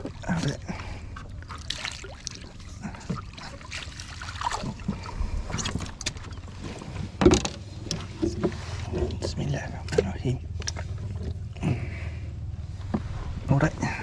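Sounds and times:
water splashing and dripping: 0:00.0 - 0:06.3.

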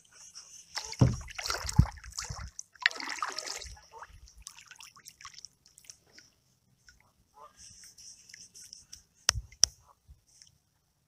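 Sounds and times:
water splashing around kayak paddle: 0:00.7 - 0:06.3
heavy knocks on kayak: 0:01.0 - 0:01.3.

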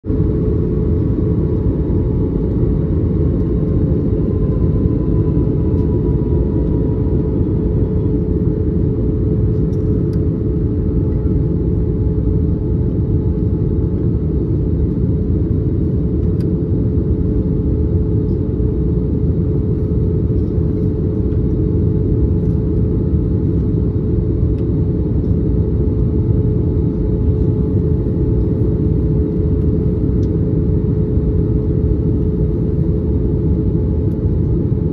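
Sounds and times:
air rushing along fuselage: 0:00.1 - 0:11.3
jet engines droning: 0:00.1 - 0:34.9
steady hum: 0:00.1 - 0:34.9.

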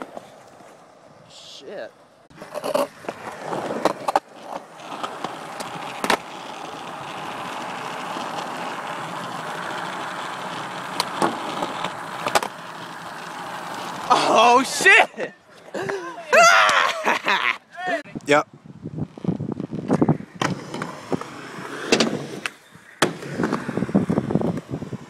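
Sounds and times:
skateboard wheels rolling on concrete: 0:00.0 - 0:25.0
skateboard clacks: 0:02.4 - 0:14.1.

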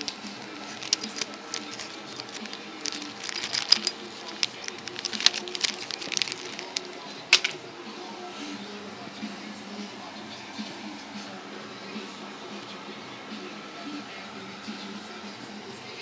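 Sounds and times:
plastic bag crinkling: 0:00.0 - 0:07.5.

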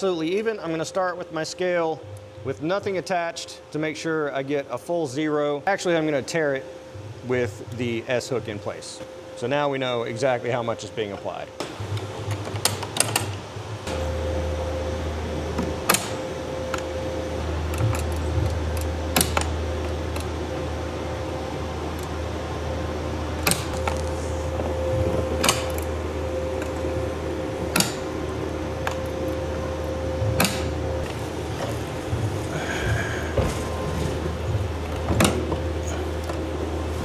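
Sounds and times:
low machine hum: 0:00.0 - 0:37.0
hand winch clicking: 0:12.0 - 0:13.4, 0:17.7 - 0:20.4, 0:23.4 - 0:26.0, 0:27.6 - 0:28.2, 0:30.4 - 0:31.8, 0:33.0 - 0:36.5.

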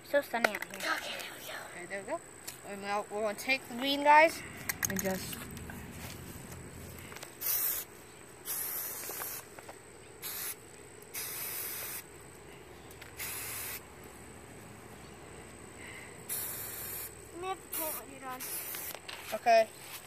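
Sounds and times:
spray paint can hissing: 0:07.4 - 0:12.1, 0:13.0 - 0:13.8, 0:16.3 - 0:19.4.

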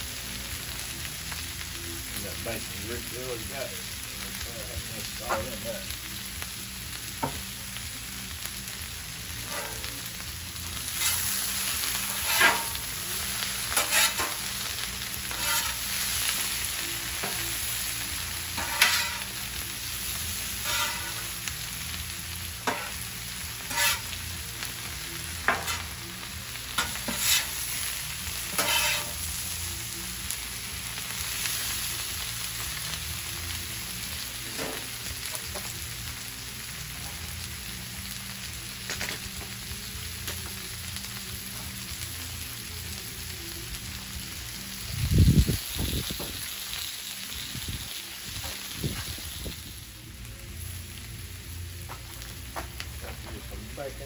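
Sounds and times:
cabbage sizzling on a griddle: 0:00.0 - 0:54.0
metal spatulas scraping griddle: 0:09.4 - 0:09.9, 0:10.9 - 0:12.8, 0:13.6 - 0:14.5, 0:15.3 - 0:16.0, 0:18.6 - 0:19.3, 0:20.6 - 0:21.2, 0:23.6 - 0:24.2, 0:26.8 - 0:27.6, 0:28.5 - 0:29.2.

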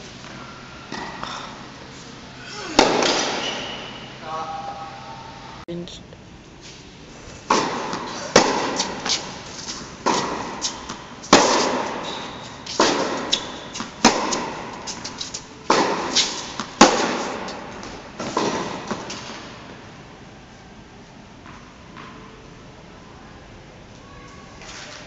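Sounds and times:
tennis ball bouncing: 0:02.8 - 0:03.6, 0:07.4 - 0:19.5
racket striking tennis ball: 0:02.8 - 0:03.8, 0:07.4 - 0:19.5.

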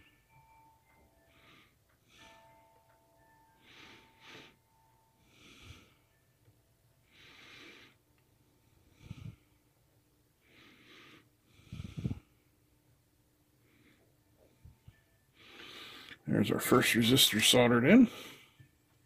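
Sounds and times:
man breathing heavily: 0:01.1 - 0:06.2, 0:07.0 - 0:09.7, 0:10.4 - 0:12.6, 0:15.4 - 0:16.2, 0:17.9 - 0:18.7.

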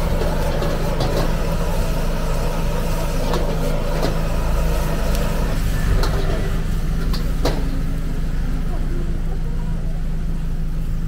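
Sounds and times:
stir-fry sizzling: 0:00.0 - 0:08.4
gas burner roaring: 0:00.0 - 0:11.0.

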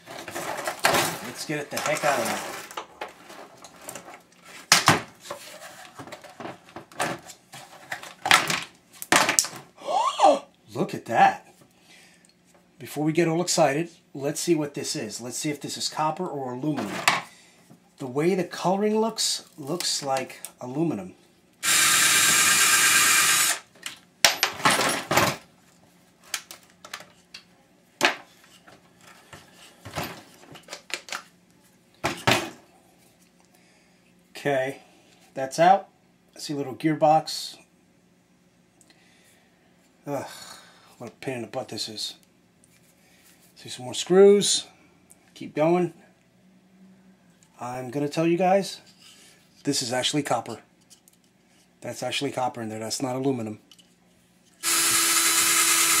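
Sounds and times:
metal and plastic parts rattling: 0:00.0 - 0:04.9, 0:23.8 - 0:25.4
power tool cutting off: 0:21.6 - 0:23.7, 0:54.6 - 0:56.0.

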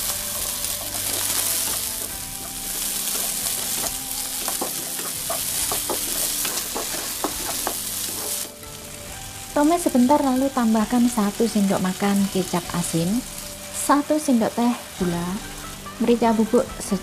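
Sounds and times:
wooden spatula scraping wok: 0:00.0 - 0:08.8
vegetables sizzling in oil: 0:00.0 - 0:17.0.

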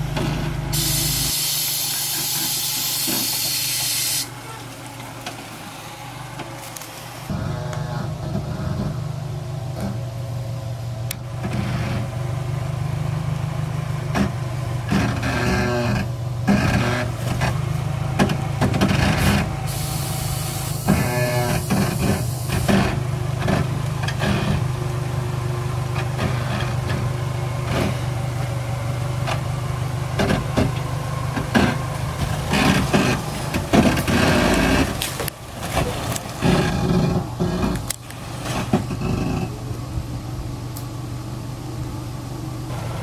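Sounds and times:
van engine running at low revs: 0:00.0 - 0:43.0
hiss: 0:00.8 - 0:04.3, 0:19.7 - 0:22.7
tyres and underbody scraping rock: 0:14.0 - 0:19.8, 0:20.7 - 0:24.9, 0:25.8 - 0:28.6, 0:29.2 - 0:39.8.

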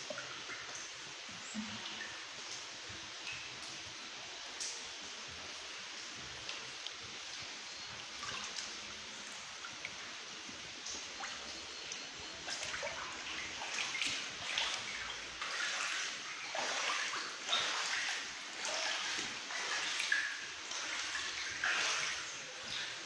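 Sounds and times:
water sloshing underfoot: 0:05.6 - 0:23.0.

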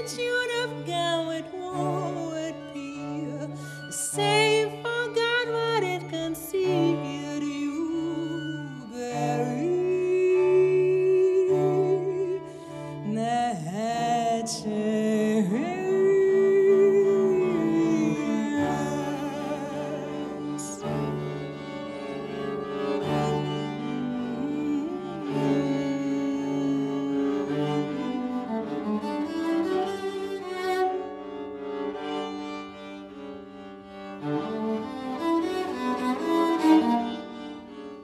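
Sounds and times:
woman singing with vibrato: 0:00.0 - 0:21.0, 0:23.4 - 0:28.2
string trio playing: 0:00.0 - 0:38.0.

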